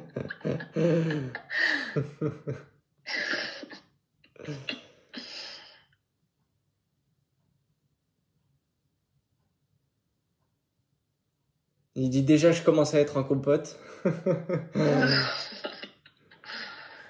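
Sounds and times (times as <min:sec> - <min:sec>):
person speaking: 0:11.9 - 0:13.9, 0:14.7 - 0:15.9.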